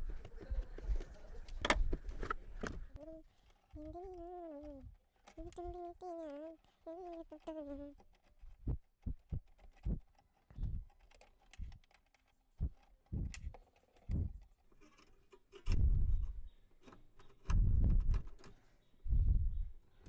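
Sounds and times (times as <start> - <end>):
dull low thumps: 8.6 - 10.0, 10.6 - 10.9, 12.6 - 13.4, 19.1 - 19.8.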